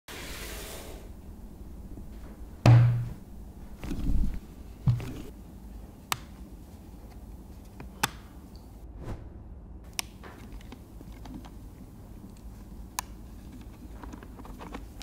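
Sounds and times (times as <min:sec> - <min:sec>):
low rumble: 0:08.8 - 0:09.9.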